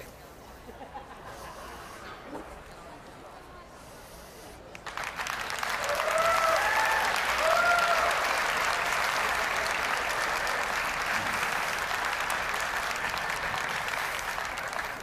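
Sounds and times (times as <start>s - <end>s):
audience applauding: 4.8s - 15.0s
whooping cheers: 5.7s - 8.7s.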